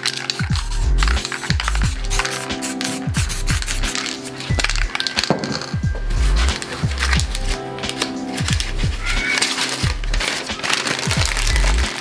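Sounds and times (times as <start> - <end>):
layered background music: 0.0 - 12.0
deep drum beat: 0.5 - 2.2, 3.1 - 3.9, 5.8 - 7.6, 8.4 - 9.2, 9.8 - 10.3.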